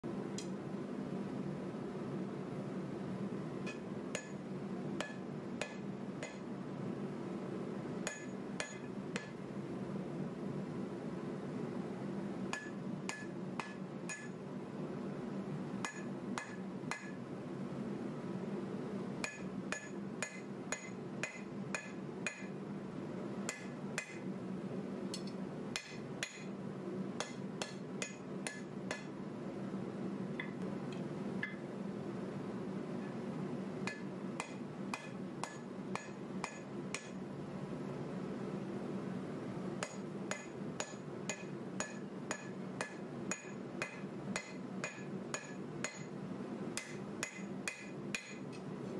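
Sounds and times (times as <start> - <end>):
steady low hum: 0.0 - 48.9
hammer ringing on hot steel: 3.7 - 4.4, 5.0 - 6.5, 8.1 - 9.4, 12.5 - 14.4, 15.8 - 17.2, 19.2 - 22.6, 23.5 - 24.3, 25.8 - 26.5, 27.2 - 29.2, 33.8 - 37.2, 39.8 - 46.2, 46.8 - 48.5.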